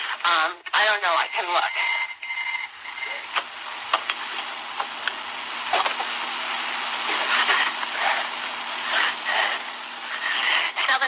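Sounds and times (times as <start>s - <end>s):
phone line hiss: 1.1s - 3.4s.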